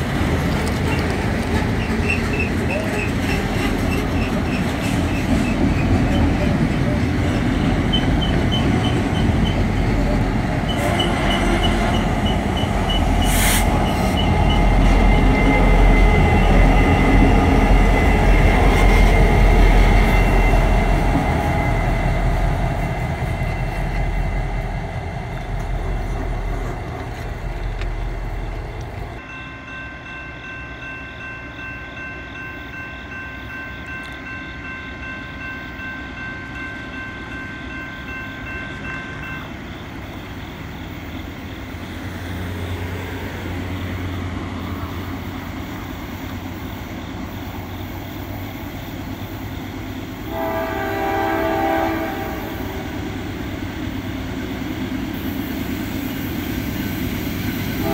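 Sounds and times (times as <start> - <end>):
locomotives rumbling past: 0.0 - 29.2.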